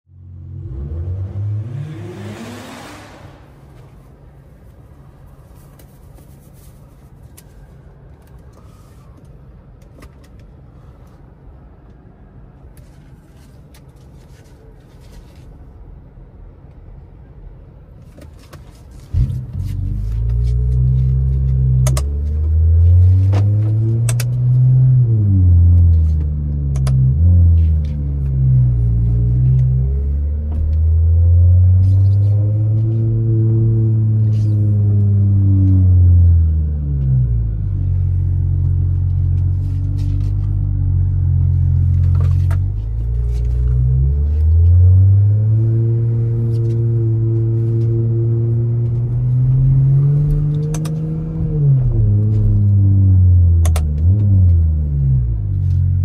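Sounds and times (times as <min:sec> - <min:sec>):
car engine revving: 0:00.2 - 0:04.1, 0:19.2 - 0:56.0.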